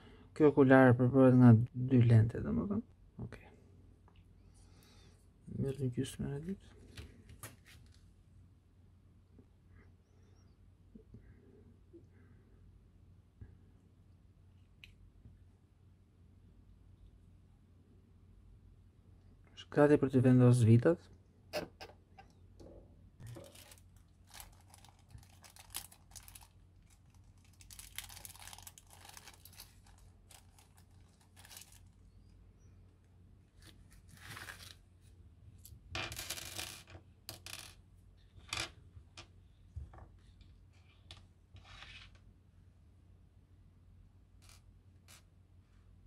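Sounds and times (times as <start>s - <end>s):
plastic bag crinkling: 23.2s - 32.0s, 33.6s - 34.8s.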